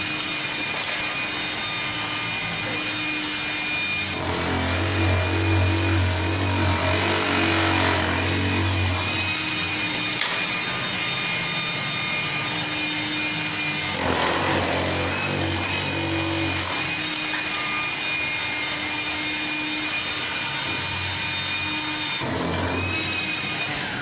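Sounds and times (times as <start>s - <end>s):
demolition hammer chipping concrete: 2.5s - 10.5s, 13.2s - 17.9s, 21.6s - 24.0s.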